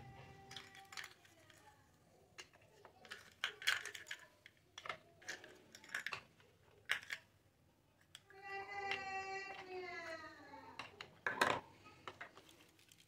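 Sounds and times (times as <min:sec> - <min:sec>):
plastic toy pieces clicking: 0:00.4 - 0:01.6, 0:02.4 - 0:07.3.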